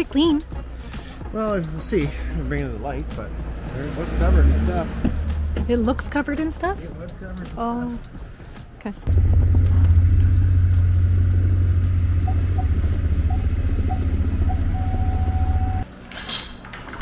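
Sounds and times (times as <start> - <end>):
engine low rumble: 1.6 - 15.9
short beeps: 12.2 - 15.8.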